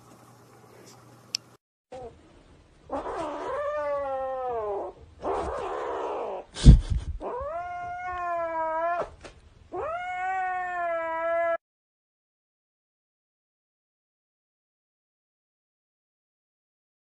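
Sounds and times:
cat yowling: 2.9s - 6.5s, 7.2s - 11.6s.

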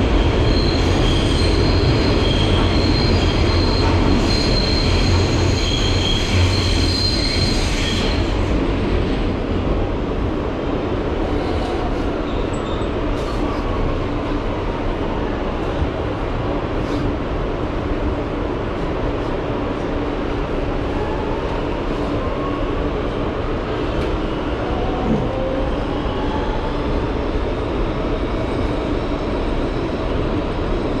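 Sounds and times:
subway car wheels rumbling on track: 0.0s - 31.0s.

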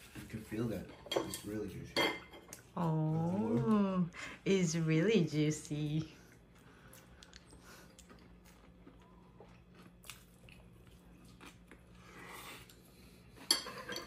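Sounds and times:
person chewing crunchy food: 6.3s - 13.4s.

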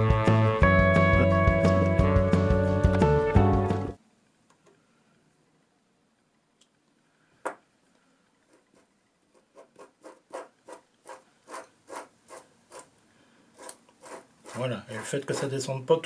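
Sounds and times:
nut rasping on screw: 8.5s - 13.0s, 13.6s - 15.6s.

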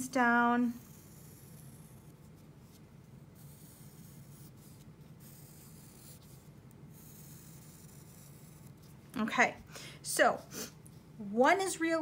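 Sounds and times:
steady low hum: 0.0s - 12.0s
pencil scratching on paper: 0.4s - 9.6s.

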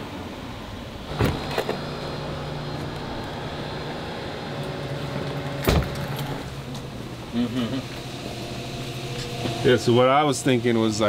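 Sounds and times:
steady humming drone: 0.6s - 11.0s
car door shutting: 1.1s - 3.8s, 4.5s - 6.5s.

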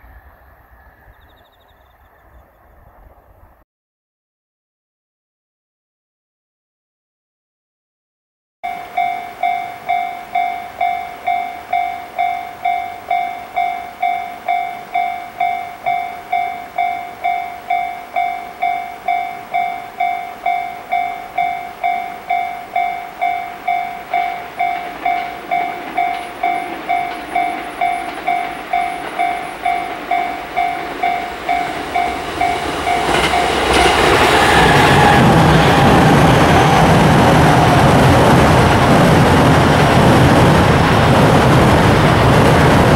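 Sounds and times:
level crossing bell ringing: 8.7s - 35.0s
electric train passing: 8.7s - 42.9s.

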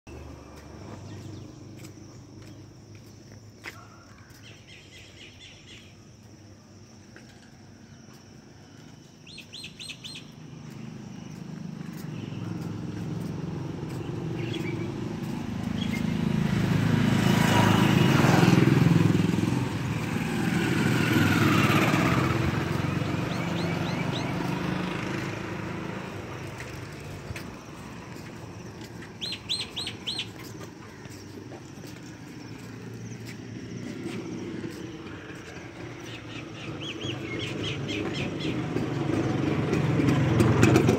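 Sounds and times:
bird chirping: 3.8s - 6.3s, 8.8s - 12.8s, 13.9s - 16.3s, 21.1s - 25.2s, 28.6s - 35.0s, 36.0s - 38.8s
motor vehicle passing: 7.8s - 40.9s.

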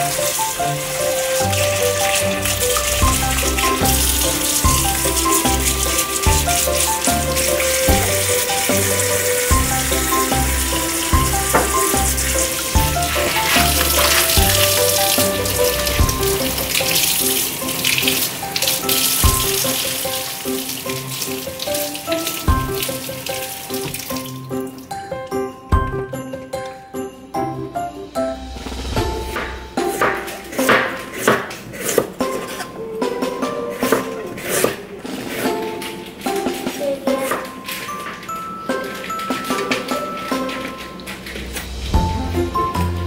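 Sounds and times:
vegetables brushed under water: 0.0s - 24.4s
tap water splashing into sink: 0.0s - 24.8s
background music: 0.0s - 43.0s.

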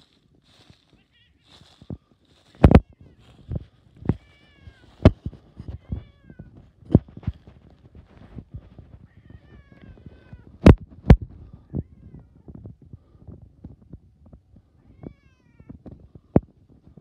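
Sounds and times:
cat meowing: 4.1s - 5.1s, 5.8s - 6.5s, 9.1s - 10.5s.

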